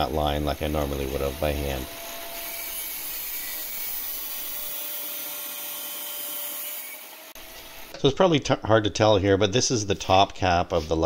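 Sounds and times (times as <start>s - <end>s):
angle grinder cutting steel: 0.0s - 8.0s.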